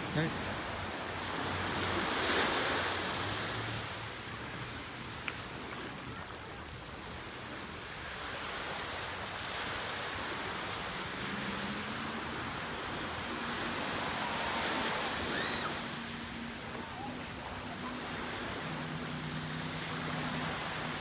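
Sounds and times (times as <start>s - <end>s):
ocean surf washing on shore: 0.0s - 21.0s
faint high chirps: 15.2s - 16.0s.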